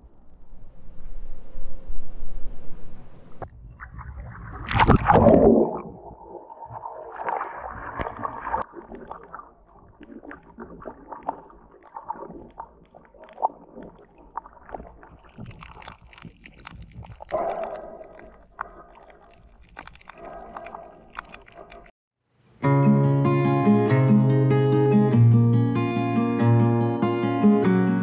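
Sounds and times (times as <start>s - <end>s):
faint underwater crackling: 0.0s - 21.9s
underwater gurgling rush: 0.3s - 21.9s.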